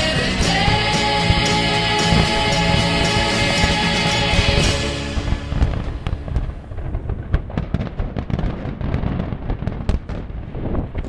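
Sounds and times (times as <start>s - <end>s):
low rumble: 0.0s - 8.4s
fireworks bangs and crackles: 0.0s - 11.0s.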